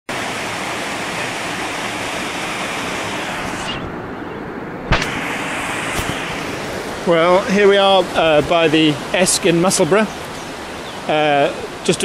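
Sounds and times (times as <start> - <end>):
water rushing over weir: 0.1 - 12.0
sharp knock: 4.9 - 5.3.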